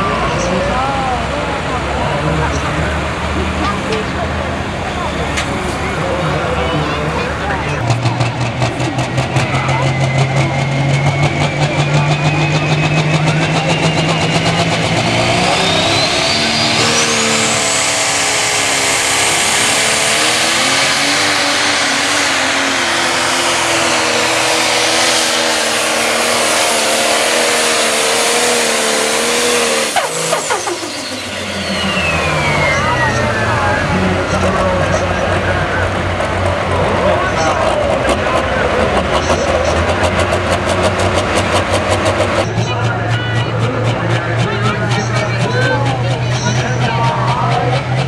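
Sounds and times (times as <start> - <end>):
diesel engine at full throttle: 0.0 - 48.0
high turbo whine: 0.0 - 48.0.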